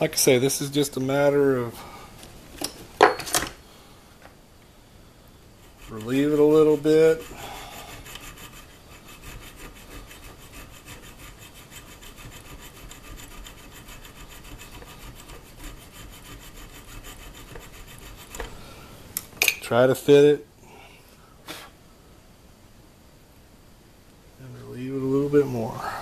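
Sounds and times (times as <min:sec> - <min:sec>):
hand file rasping on metal: 0:05.6 - 0:18.4.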